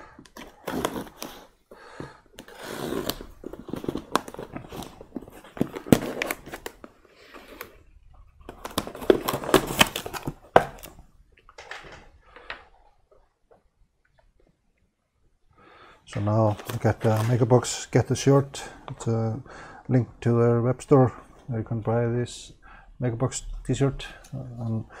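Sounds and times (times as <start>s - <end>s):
packing tape ripping: 0.3s - 1.5s, 2.4s - 5.0s.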